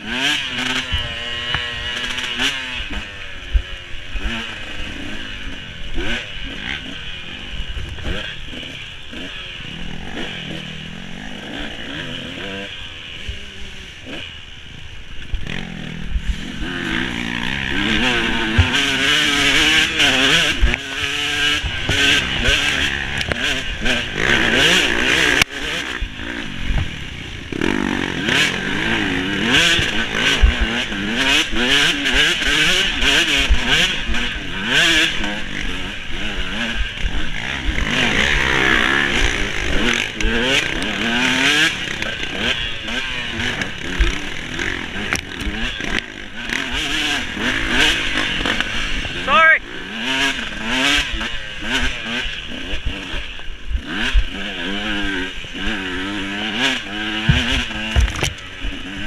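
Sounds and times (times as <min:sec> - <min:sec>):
dirt bike engine revving: 0:00.0 - 0:59.0
bike thumps and clatter: 0:57.2 - 0:58.4.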